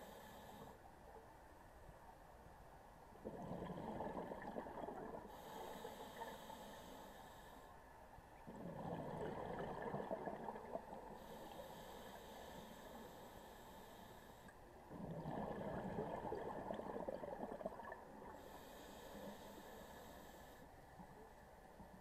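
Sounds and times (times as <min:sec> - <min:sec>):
bubbling exhale underwater: 0:03.3 - 0:05.4, 0:08.5 - 0:11.0, 0:14.9 - 0:18.3.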